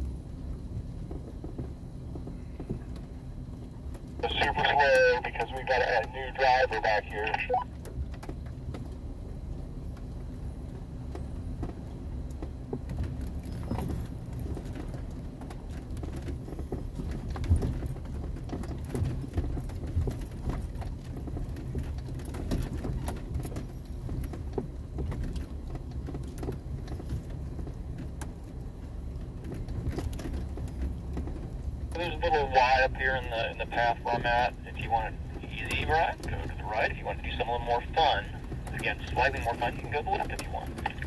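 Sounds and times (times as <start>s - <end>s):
vehicle engine running: 10.6s - 41.0s.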